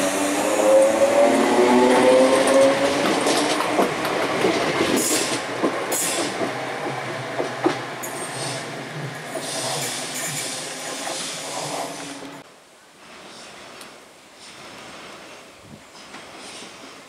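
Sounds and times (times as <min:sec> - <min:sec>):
train wheels clicking over rail joints: 0:01.8 - 0:12.4, 0:15.9 - 0:17.0.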